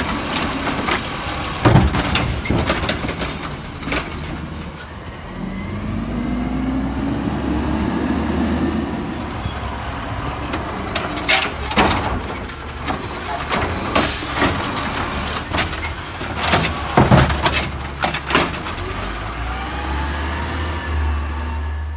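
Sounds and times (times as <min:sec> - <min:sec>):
trash cart knocks and bangs: 0:00.0 - 0:04.5, 0:10.4 - 0:18.9
truck engine running: 0:00.0 - 0:21.9.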